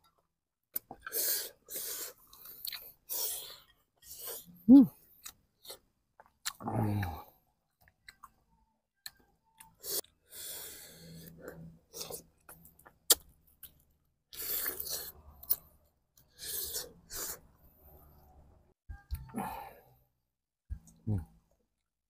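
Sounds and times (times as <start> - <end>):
person chewing food: 0.7 - 17.5.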